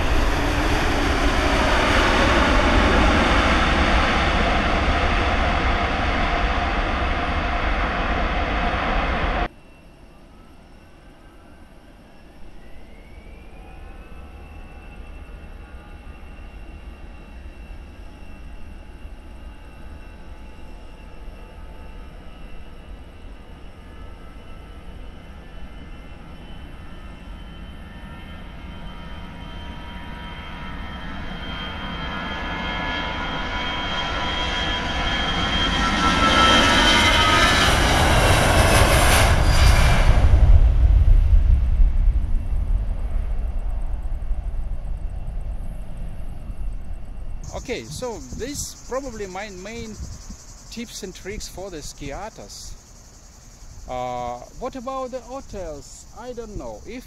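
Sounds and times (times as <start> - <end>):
jet engines spooling up: 0.0 - 9.7, 25.7 - 57.0.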